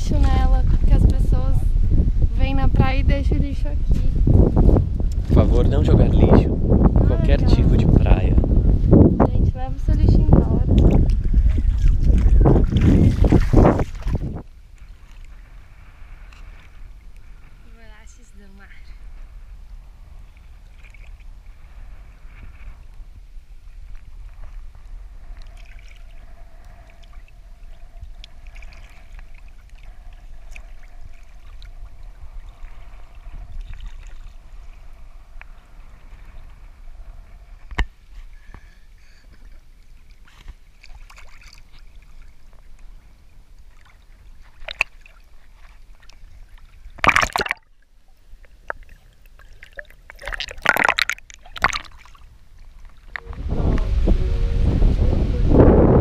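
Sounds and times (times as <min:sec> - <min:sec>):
seawater sloshing and gurgling: 0:10.4 - 0:17.6, 0:23.6 - 0:37.7, 0:39.2 - 0:53.4
loud sudden splash: 0:47.0 - 0:47.6
low steady rumble: 0:53.1 - 0:56.0.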